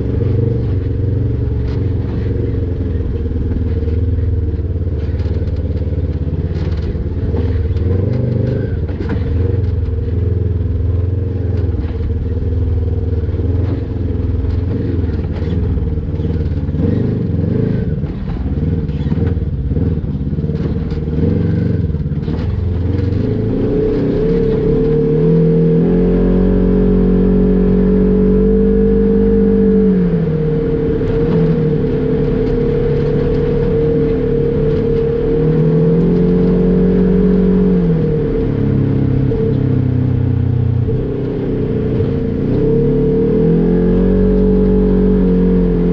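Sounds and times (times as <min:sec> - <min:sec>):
off-road vehicle engine: 0:00.0 - 0:45.9.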